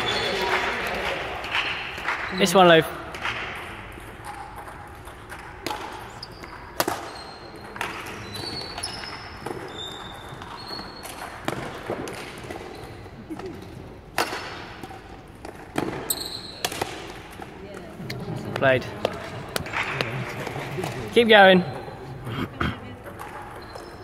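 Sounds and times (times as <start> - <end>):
shoes squeaking on court: 0.0 - 0.6, 6.0 - 13.8, 15.7 - 16.9, 22.9 - 24.0
racket hitting shuttlecock: 3.1 - 9.7, 10.5 - 12.7, 14.1 - 17.5.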